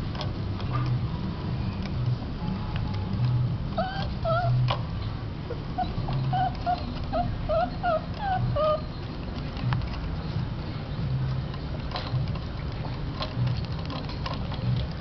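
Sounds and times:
puppies whimpering: 3.7s - 4.8s, 5.4s - 9.8s.

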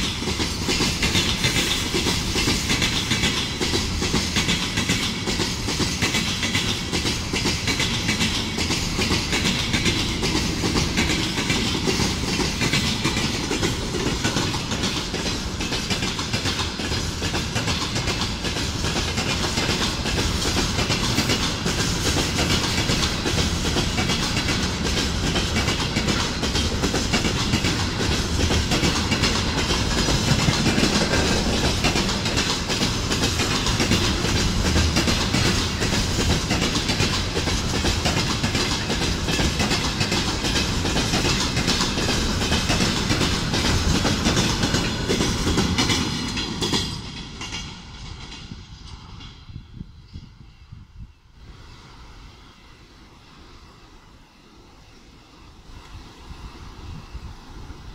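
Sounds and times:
wheels clicking over rail joints: 0.0s - 49.1s
freight train rumble: 0.0s - 57.9s.

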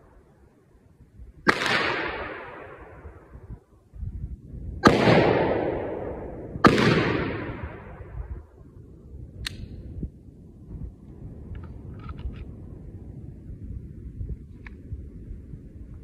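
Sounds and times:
rifle shots echoing: 1.5s - 3.1s, 4.8s - 8.2s
sharp click: 9.4s - 9.8s.

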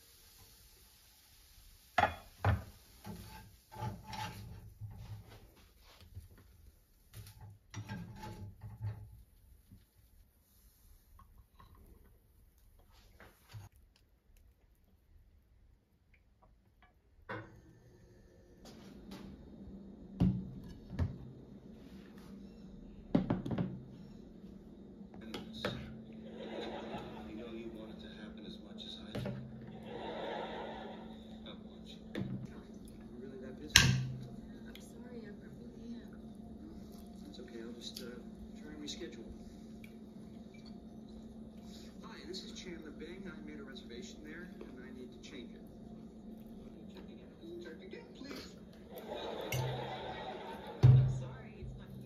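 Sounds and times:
spatula scraping in frying pan: 1.3s - 5.8s, 7.2s - 9.2s.

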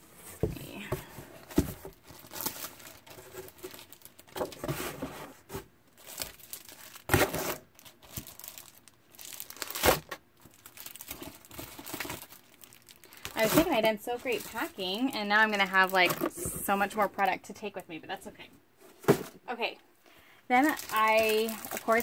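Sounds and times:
cellophane crinkling: 0.5s - 17.3s, 20.5s - 22.0s
packs bumping into box: 18.9s - 19.4s.

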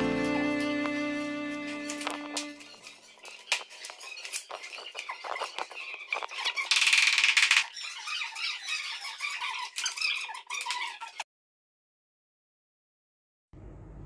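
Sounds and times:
loud squeak: 0.0s - 11.2s
clicks and scuffs: 1.8s - 7.7s.

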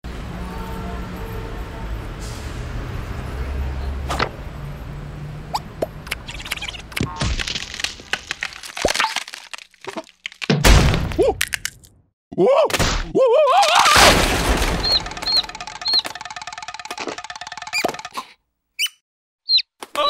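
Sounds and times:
cartoon eggshell cracking: 6.1s - 11.9s, 13.6s - 18.2s
wavering cartoon cries: 12.4s - 14.1s.

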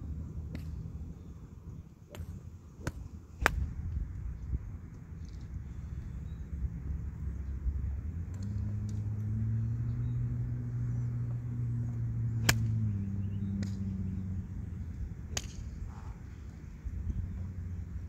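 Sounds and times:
low motor hum: 0.0s - 18.0s
golf club striking ball: 2.1s - 3.7s, 12.4s - 12.9s, 15.3s - 15.8s.

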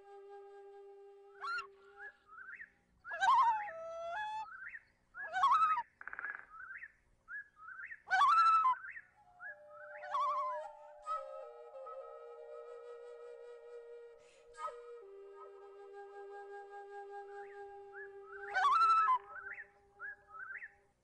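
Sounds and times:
flute music: 0.0s - 2.4s, 8.3s - 20.7s.

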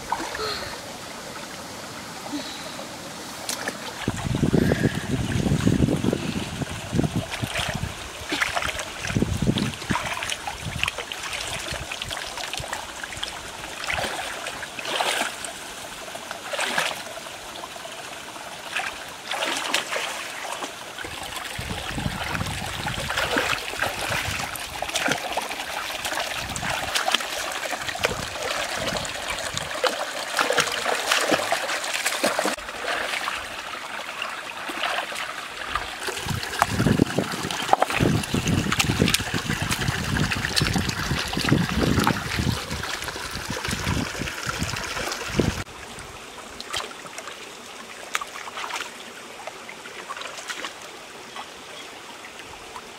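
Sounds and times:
stream trickling over rocks: 0.0s - 52.9s
splashes of person wading: 3.4s - 5.1s, 7.3s - 9.2s, 13.8s - 15.6s, 16.4s - 17.1s, 18.6s - 21.6s, 22.2s - 44.0s, 48.0s - 49.0s, 50.0s - 50.9s.

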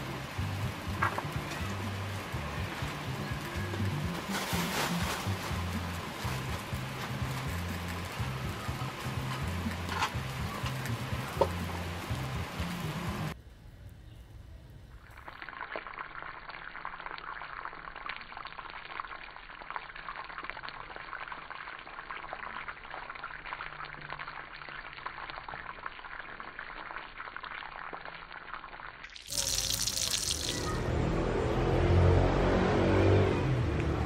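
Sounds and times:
fish sizzling in hot oil: 4.2s - 13.3s, 15.1s - 30.8s.

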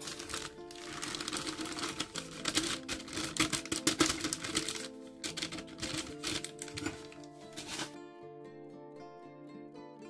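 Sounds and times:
plastic bag crinkling: 0.0s - 8.0s
soft background music: 0.0s - 10.0s.

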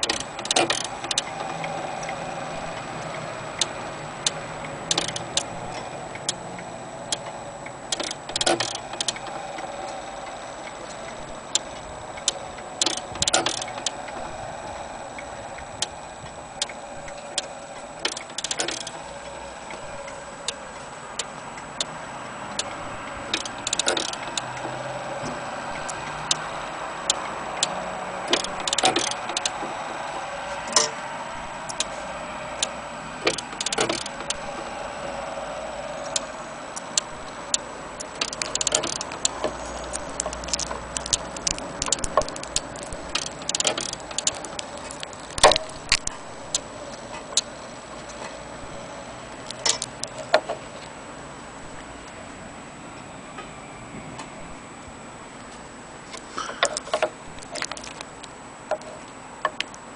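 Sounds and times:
wall clock ticking: 0.0s - 47.6s.

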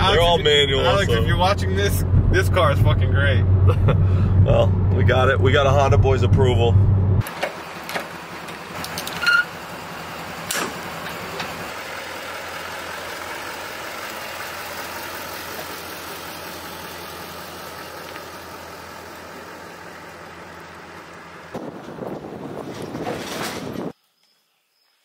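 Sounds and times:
pickup truck engine running: 0.0s - 23.0s
sharp metallic clanks: 10.4s - 11.6s.

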